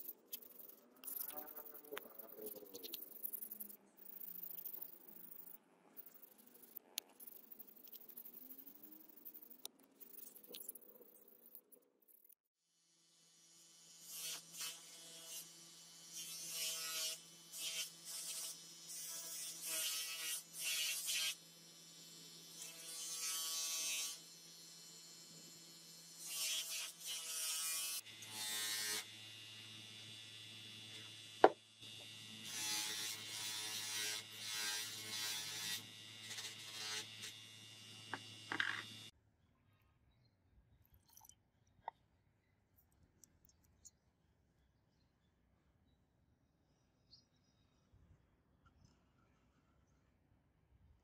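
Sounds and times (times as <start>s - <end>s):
bench grinder motor running: 28.1s - 39.1s.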